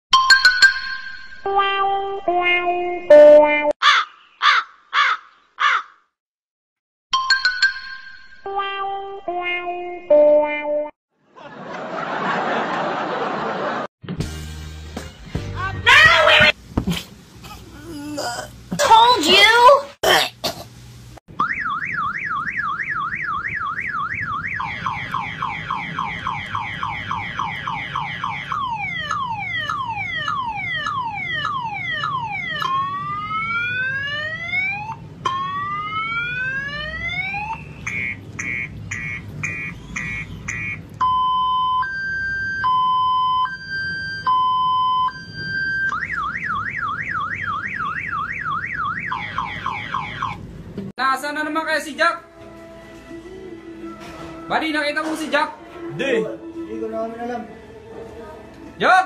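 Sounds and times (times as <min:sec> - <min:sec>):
car alarm siren: 0:21.3 - 0:50.4.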